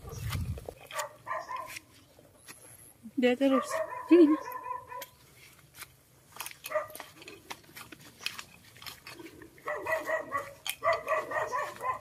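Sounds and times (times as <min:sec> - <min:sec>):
light footsteps: 0:00.0 - 0:02.9, 0:03.5 - 0:12.0
rustling through undergrowth: 0:00.0 - 0:12.0
dog barking: 0:00.9 - 0:01.8, 0:03.5 - 0:05.2, 0:06.7 - 0:07.0, 0:09.6 - 0:12.0.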